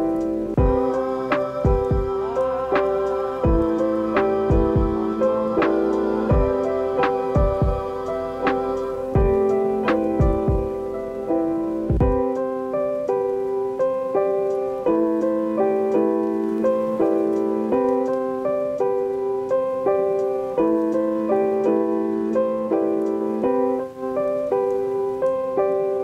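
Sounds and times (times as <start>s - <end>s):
held low notes: 0.0s - 12.5s
light background melody: 0.0s - 26.0s.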